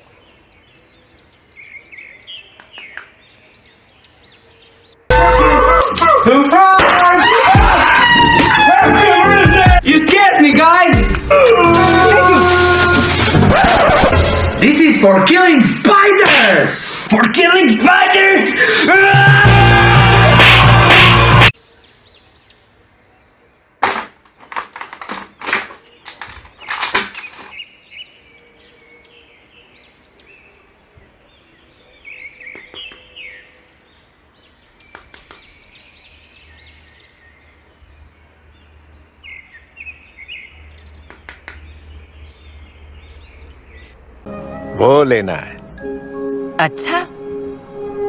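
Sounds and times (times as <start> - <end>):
plastic clicks and crackles: 24.2 - 27.6.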